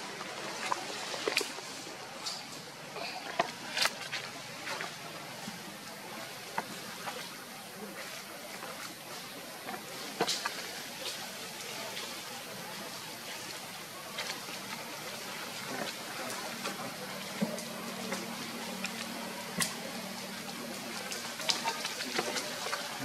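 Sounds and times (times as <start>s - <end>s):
light clicks and crackles: 0.6s - 4.9s, 8.6s - 12.2s.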